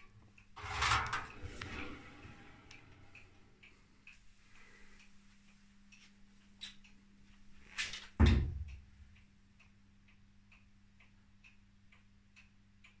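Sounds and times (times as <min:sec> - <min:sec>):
low hum: 0:00.6 - 0:04.9.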